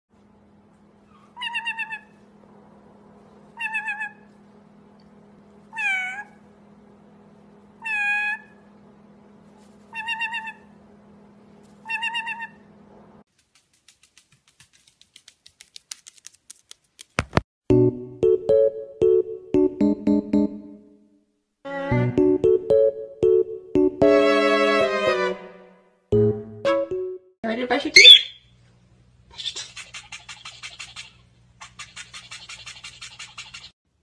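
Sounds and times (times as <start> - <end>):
low steady hum: 0.2 - 13.2
parrot meow-like calls: 1.2 - 2.1, 3.6 - 4.3, 5.7 - 6.4, 7.8 - 8.6, 9.9 - 10.7, 11.8 - 12.6.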